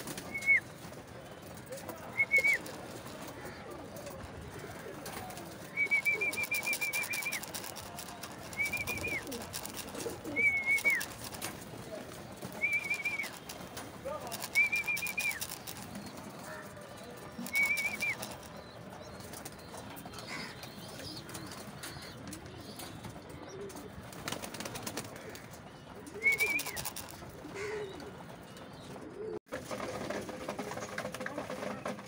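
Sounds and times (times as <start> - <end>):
pigeons cooing: 1.6 - 29.4
wing clattering bursts: 4.8 - 19.7, 26.3 - 27.6.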